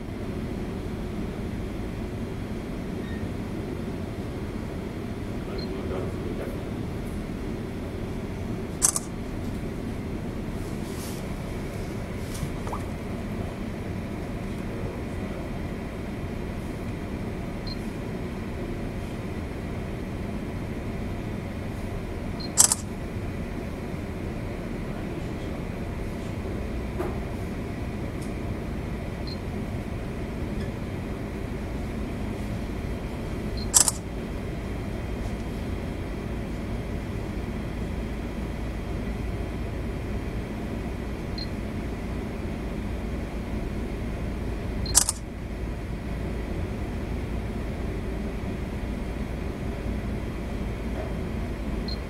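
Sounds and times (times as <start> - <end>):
sharp double click: 8.8 - 9.1, 22.4 - 22.9, 33.7 - 34.0, 44.9 - 45.3.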